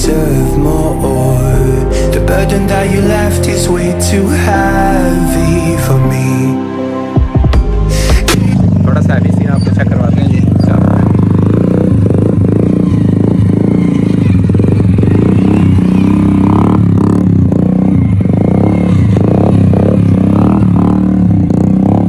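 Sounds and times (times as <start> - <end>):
small motorcycle engine revving: 8.3 - 22.0.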